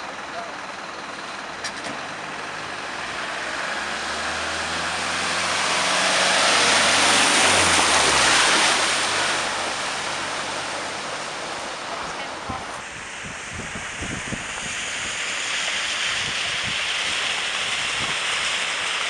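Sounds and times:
minibus engine: 0.0s - 19.0s
water spray from wheels: 0.0s - 19.0s.

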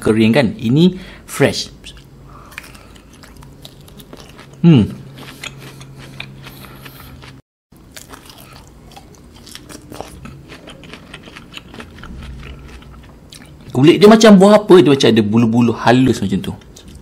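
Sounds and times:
close chewing with mouth clicks: 1.8s - 13.8s, 16.6s - 17.0s.

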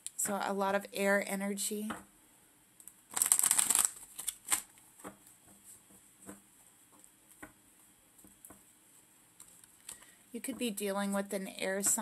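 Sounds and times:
cards riffling: 3.1s - 4.8s.

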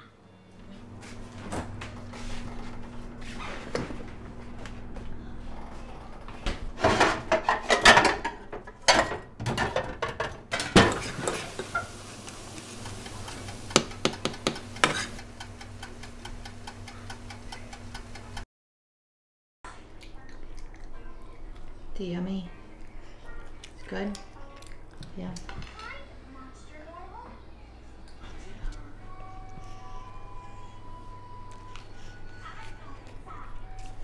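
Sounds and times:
dishes and utensils clinking: 6.8s - 18.4s.

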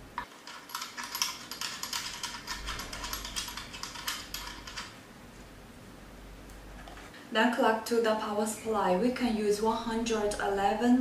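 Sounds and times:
metal connector clicking and rattling: 0.4s - 5.0s.

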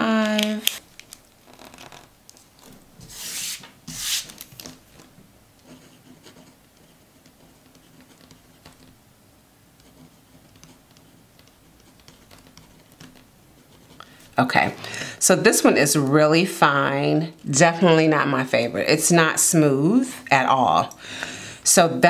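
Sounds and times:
pen rubbing strokes on paper: 3.0s - 4.4s
pen scratching handwriting: 5.6s - 9.0s, 9.8s - 14.0s.

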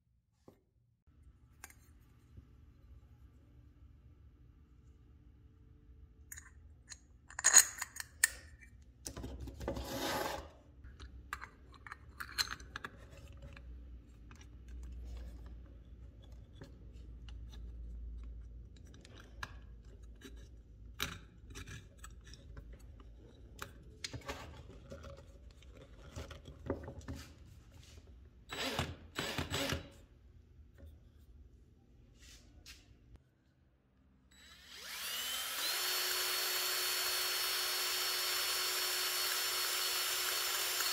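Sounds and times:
cordless drill spinning: 28.5s - 29.8s, 34.3s - 40.9s.

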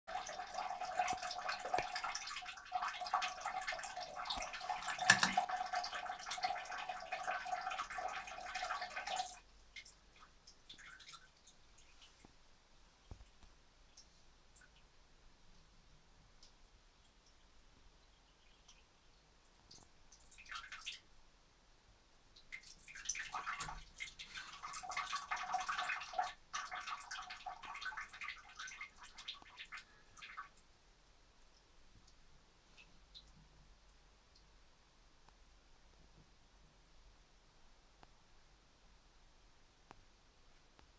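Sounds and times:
cat urinating into toilet water: 0.1s - 12.3s, 19.5s - 21.1s, 22.4s - 30.7s.

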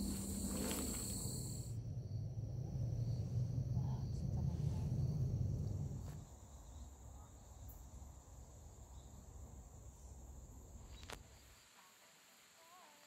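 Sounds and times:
low rumble: 0.0s - 6.2s
crickets chirring: 0.0s - 11.8s.

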